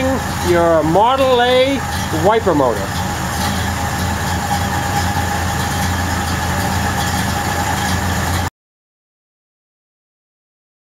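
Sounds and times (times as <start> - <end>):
truck engine idling: 0.0 - 8.5.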